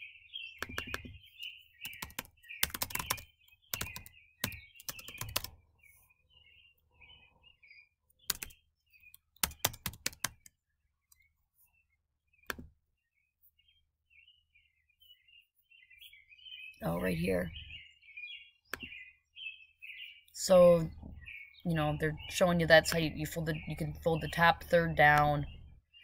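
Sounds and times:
computer keyboard typing: 0.6s - 1.2s, 1.8s - 5.5s, 8.2s - 8.6s, 9.3s - 10.5s.

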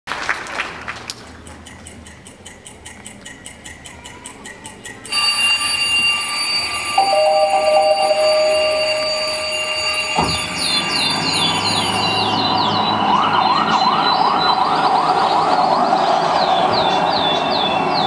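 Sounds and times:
clock ticking over loudspeakers: 1.4s - 5.3s
electronic alarm sound: 5.1s - 14.6s
beeping tones: 7.0s - 12.8s.

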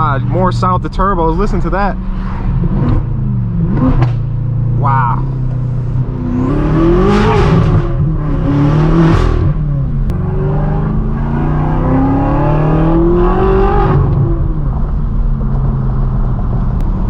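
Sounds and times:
car engine accelerating hard: 0.0s - 17.0s.

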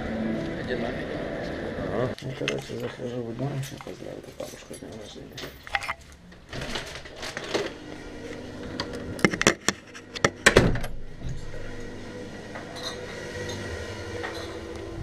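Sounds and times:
dishes and cutlery clinking: 12.7s - 13.6s.

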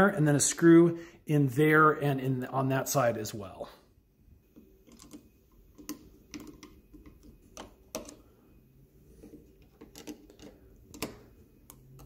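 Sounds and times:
screwdriver clicking and tapping: 9.8s - 12.0s.

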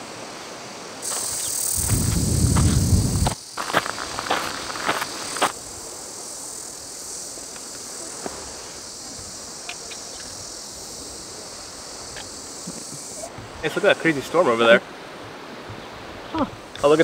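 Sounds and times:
insects buzzing: 0.0s - 17.0s
footstep on gravel: 1.0s - 5.6s.

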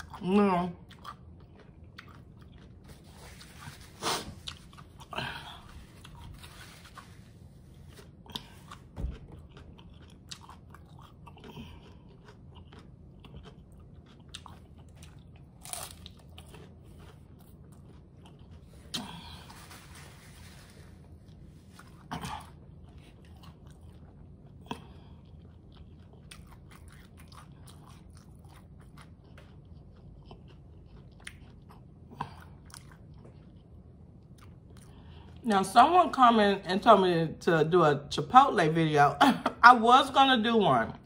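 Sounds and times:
wet chewing mouth sounds: 0.0s - 19.5s, 20.8s - 35.4s
sharp taco crunches: 12.7s - 17.1s.

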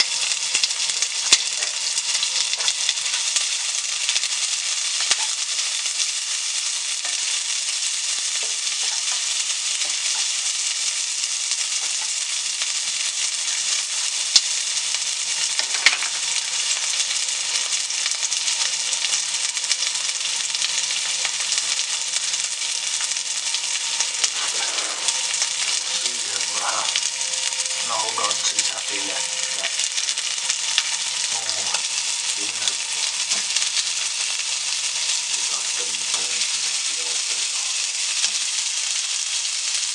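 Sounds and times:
fat sizzling and crackling: 0.0s - 39.9s.

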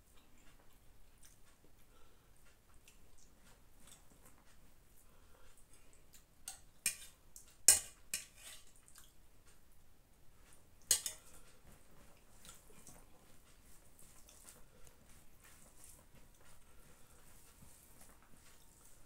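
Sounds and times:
metal spoon clinking on pot: 6.5s - 7.1s, 7.7s - 8.6s, 10.9s - 11.3s.

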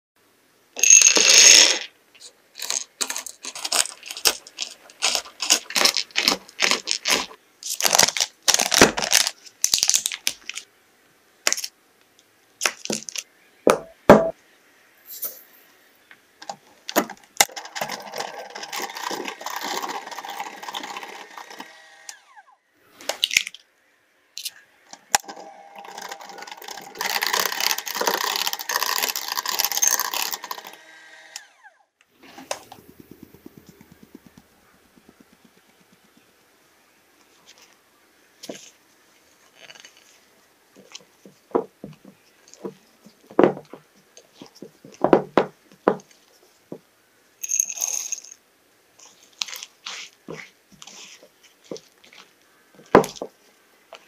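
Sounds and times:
knocks on cutting board: 13.7s - 14.3s
electric hand mixer whipping: 18.0s - 22.4s, 25.8s - 31.6s.

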